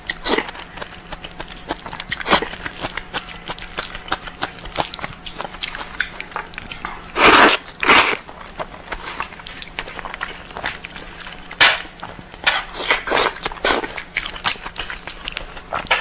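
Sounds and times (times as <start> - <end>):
wet chewing and lip smacks: 0.0 - 16.0
noodle slurps: 7.1 - 8.2.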